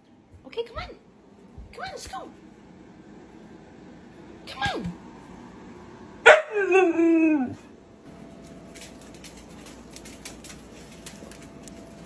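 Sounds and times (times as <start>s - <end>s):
dog howling whine: 6.5s - 7.7s.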